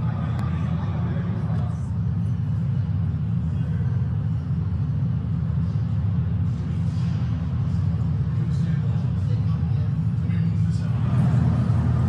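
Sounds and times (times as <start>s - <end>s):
subway train rumble: 0.0s - 12.0s.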